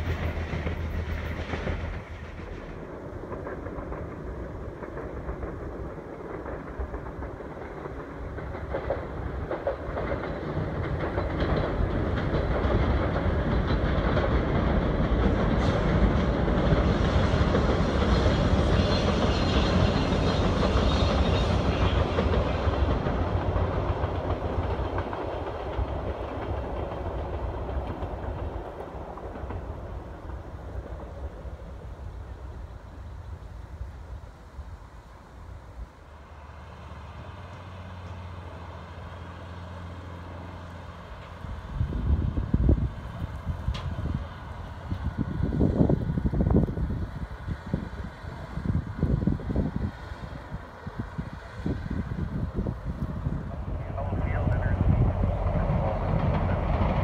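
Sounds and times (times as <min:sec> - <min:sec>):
train passing over bridge: 0:00.0 - 0:57.0.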